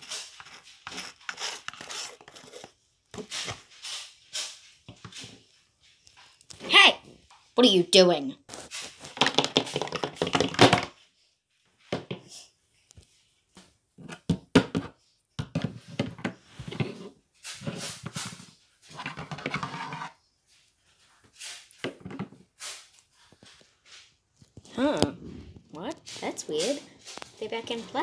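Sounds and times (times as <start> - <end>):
plastic figurines tapping wood floor: 9.1 - 10.9.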